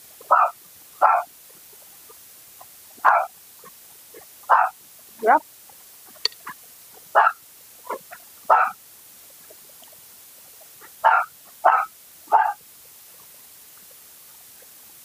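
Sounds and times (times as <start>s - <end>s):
dog barking: 0.3s - 1.3s, 3.0s - 3.3s, 4.5s - 4.8s, 7.1s - 8.8s, 11.0s - 12.6s.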